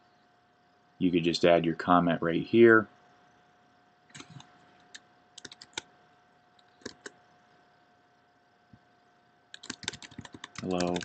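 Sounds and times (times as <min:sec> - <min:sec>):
faint electrical hum: 0:00.0 - 0:11.0
mouse and keyboard clicks: 0:04.1 - 0:05.9, 0:06.6 - 0:07.2.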